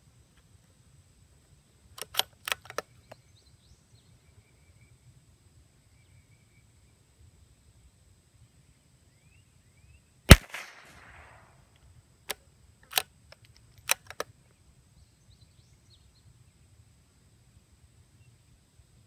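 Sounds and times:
rifle bolt metallic clicks: 2.0 - 2.9, 10.3 - 11.4, 12.3 - 14.3
rifle shot: 10.3 - 11.6.

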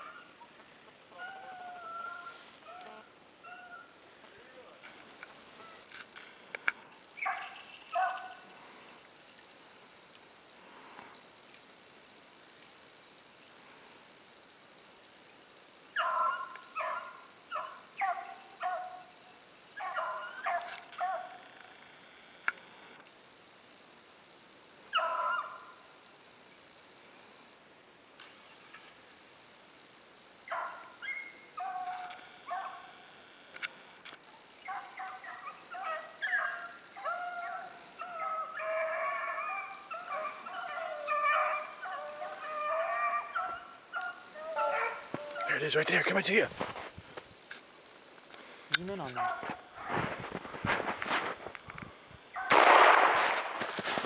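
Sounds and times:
hounds barking: 1.1 - 4.0, 7.1 - 8.8, 15.9 - 19.2, 19.8 - 21.6, 24.9 - 25.9, 30.5 - 33.0, 34.6 - 46.1, 49.0 - 50.0, 52.3 - 52.6.

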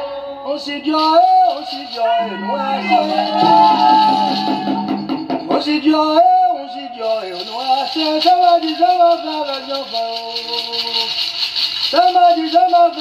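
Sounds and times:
person singing a chant: 1.4 - 7.0.

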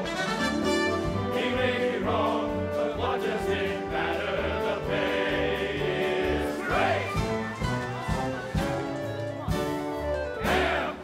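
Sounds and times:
choir singing: 0.7 - 8.6, 10.4 - 11.0.

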